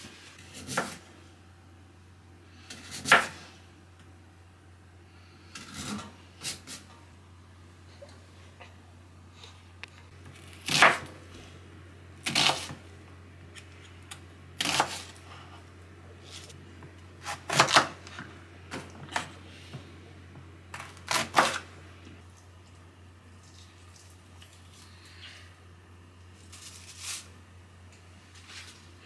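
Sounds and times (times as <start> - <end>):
knife cutting vegetables: 12.2 - 12.8, 14.6 - 15.2.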